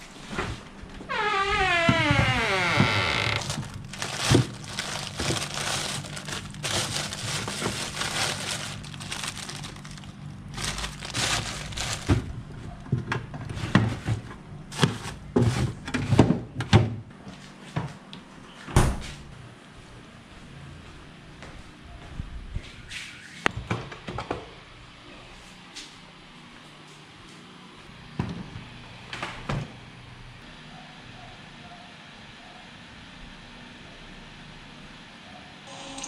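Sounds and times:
plastic bags rustling and crinkling: 2.1 - 12.6, 13.6 - 15.8.

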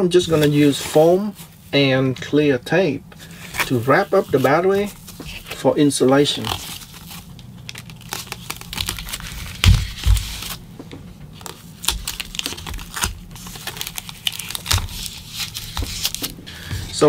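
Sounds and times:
packing foam crinkling: 3.2 - 10.7, 11.3 - 17.0
tape being pulled and pressed: 6.2 - 10.6, 11.4 - 16.9.

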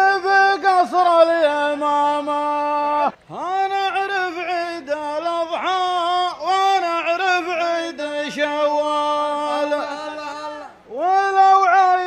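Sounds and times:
man chanting into a microphone: 0.0 - 12.0.

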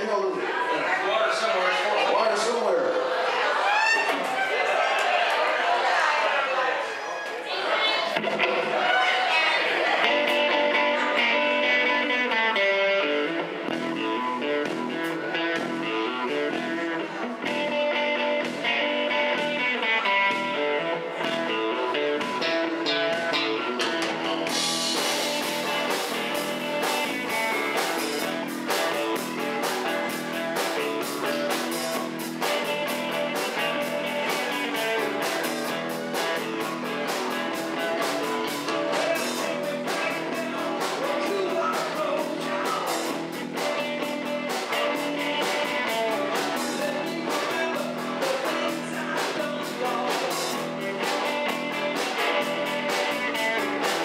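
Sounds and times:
electric guitar: 8.1 - 54.0
electric bass: 9.8 - 54.0
drum kit steady beat: 22.2 - 54.0
man singing: 32.6 - 54.0.

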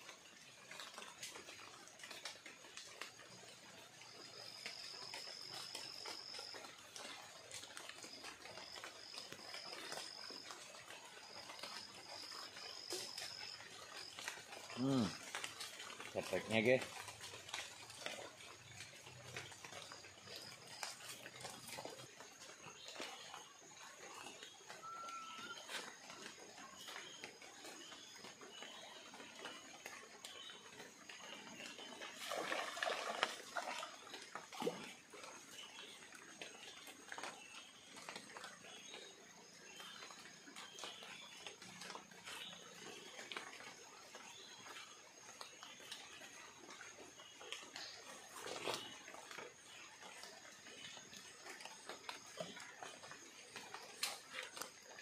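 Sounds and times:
flooded river rushing: 4.6 - 26.4, 31.7 - 37.3
animal high-pitched call: 24.7 - 25.9.

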